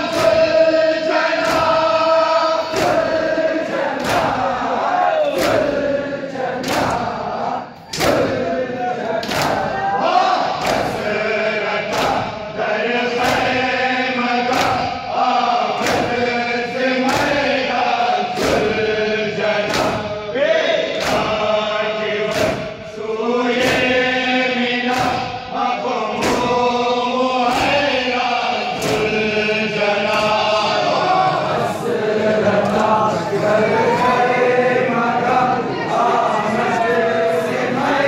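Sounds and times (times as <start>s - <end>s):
men chanting a lament: 0.0s - 38.0s
hand slaps on chest: 21.0s - 21.4s.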